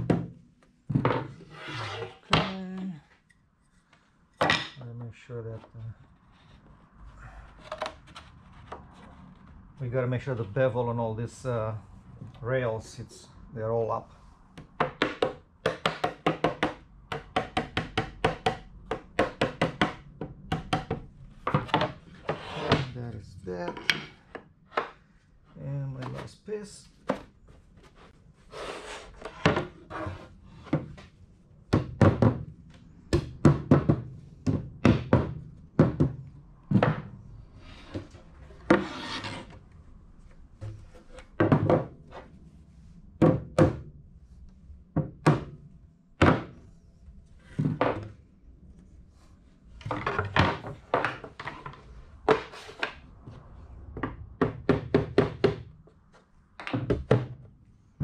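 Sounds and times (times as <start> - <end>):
wood rubbing: 1.0 - 2.5, 18.3 - 25.1, 37.7 - 39.6
rubber mallet thudding on wood: 14.6 - 21.9, 33.1 - 37.1, 43.2 - 43.9, 46.2 - 46.6.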